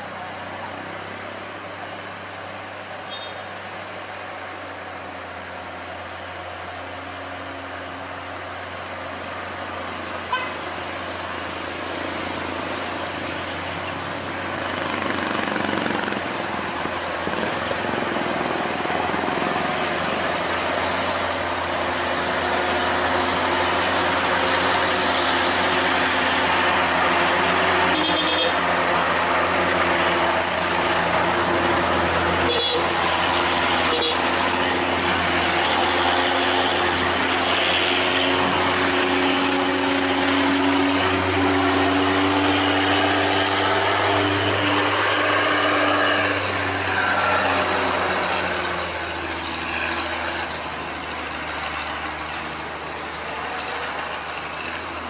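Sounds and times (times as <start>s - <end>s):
diesel truck engines: 0.0s - 55.0s
truck horn toots: 10.3s - 10.6s, 27.8s - 28.7s, 32.4s - 33.2s, 33.8s - 34.4s.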